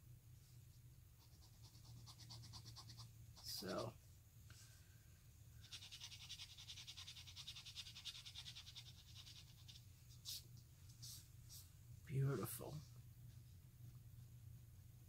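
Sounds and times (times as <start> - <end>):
low steady hum: 0.0 - 15.0
pen nib scratching paper: 1.2 - 3.9, 5.6 - 10.4.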